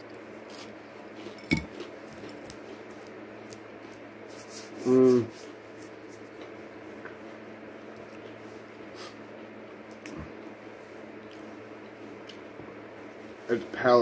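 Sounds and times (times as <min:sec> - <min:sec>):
hands rubbing together: 0:04.2 - 0:06.3.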